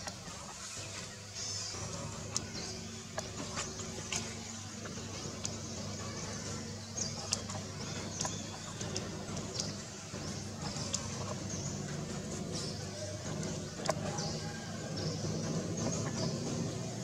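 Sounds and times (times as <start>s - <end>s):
low engine hum: 0.0s - 17.0s
sharp ticks: 2.2s - 12.0s.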